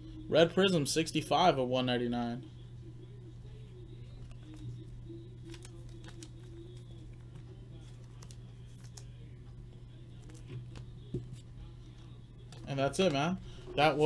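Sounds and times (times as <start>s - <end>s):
steady low hum: 0.0s - 14.0s
plastic sleeve rustling: 4.2s - 9.1s.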